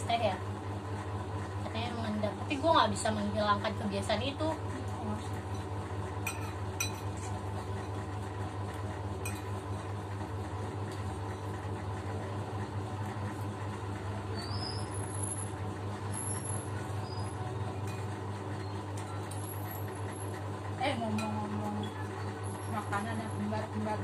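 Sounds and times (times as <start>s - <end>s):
steady low hum: 0.0s - 24.0s
spoon clinking against bowl: 6.3s - 7.1s.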